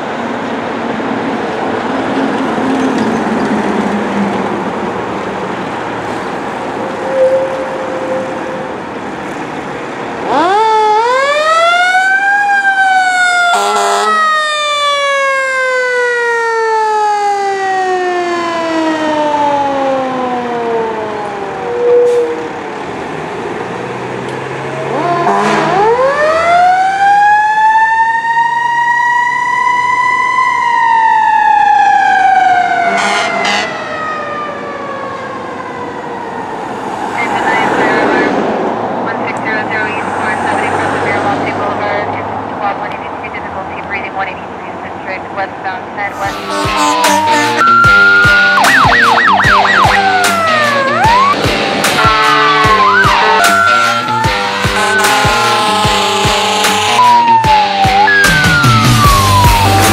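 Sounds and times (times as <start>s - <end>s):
fire engine siren wailing: 0.0s - 59.9s
road traffic: 0.0s - 59.9s
short siren blasts: 6.4s - 8.9s, 10.2s - 22.6s, 24.8s - 38.4s, 46.0s - 59.9s.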